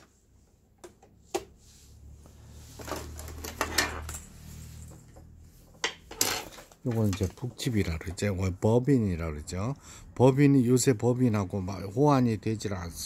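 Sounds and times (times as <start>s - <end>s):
small parts clicking and clattering: 2.8s - 7.4s.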